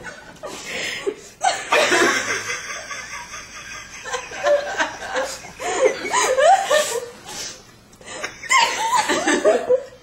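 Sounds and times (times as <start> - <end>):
people laughing: 0.0 - 10.0.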